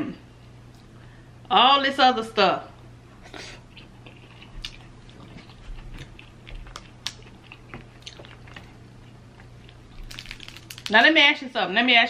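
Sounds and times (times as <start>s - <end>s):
close-up chewing: 3.7s - 10.9s
crab shells clicking and crackling: 9.7s - 11.0s.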